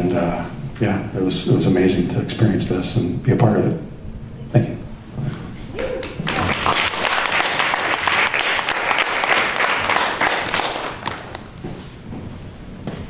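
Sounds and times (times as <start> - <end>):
audience applauding: 5.8 - 11.6.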